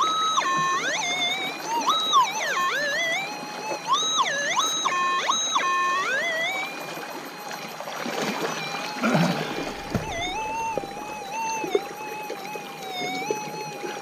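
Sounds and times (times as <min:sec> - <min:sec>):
water splashing: 0:07.5 - 0:14.0
metal detector tone: 0:08.3 - 0:12.3.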